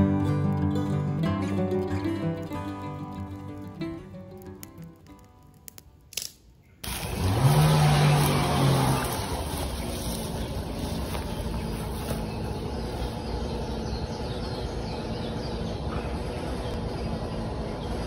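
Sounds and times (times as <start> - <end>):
motor hum rising in pitch: 6.8 - 18.0.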